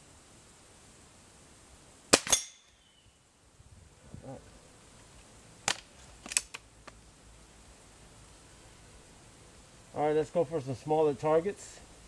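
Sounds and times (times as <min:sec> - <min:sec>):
air rifle firing: 0:02.1 - 0:02.6
pellet ringing on metal target: 0:02.2 - 0:03.0.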